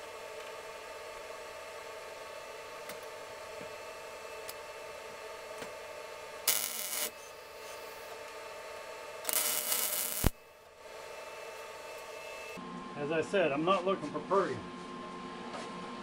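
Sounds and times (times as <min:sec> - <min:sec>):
welder steady hum: 0:00.0 - 0:16.0
welding arc hissing crackle: 0:06.4 - 0:08.2, 0:09.2 - 0:10.9.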